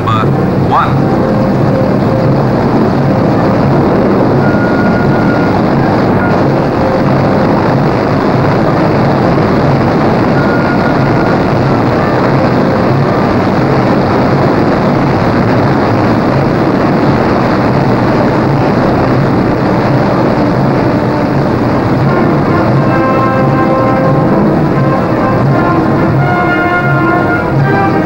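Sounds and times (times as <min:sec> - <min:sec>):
radial piston engines running: 0:00.0 - 0:28.0.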